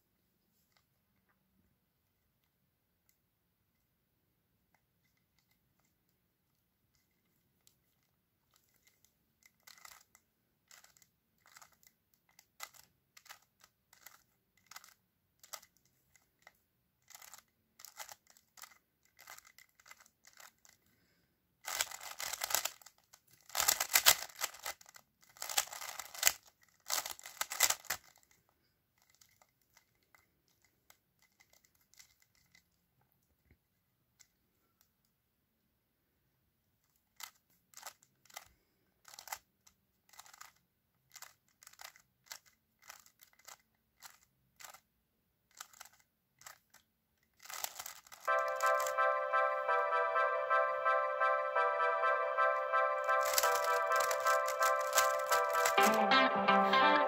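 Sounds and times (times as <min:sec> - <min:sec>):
plastic puzzle cube clicking: 0:04.7 - 0:06.0, 0:06.9 - 0:20.8, 0:21.6 - 0:28.4, 0:29.0 - 0:32.8, 0:36.9 - 0:44.9, 0:45.5 - 0:48.9, 0:53.1 - 0:56.1.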